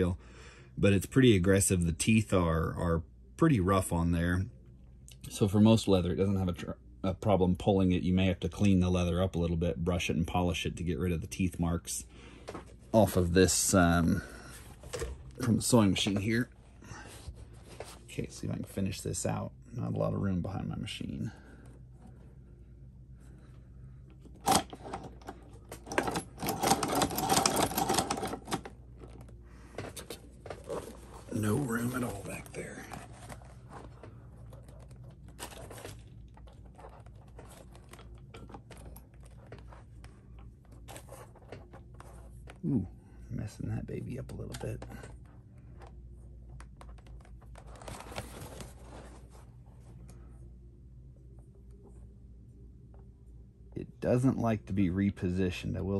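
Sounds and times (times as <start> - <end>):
steady low hum: 0.0 - 55.9
sewing machine mechanism clattering: 24.4 - 28.7
leather rustling and scraping: 24.5 - 42.6.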